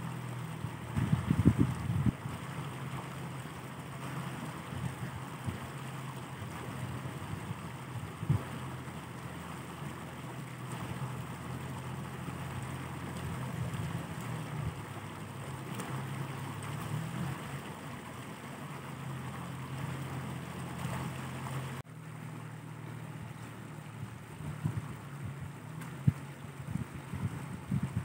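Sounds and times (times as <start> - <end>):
low motor hum: 0.0 - 28.0
wind noise on microphone: 0.6 - 2.4, 6.4 - 8.6, 24.0 - 28.0.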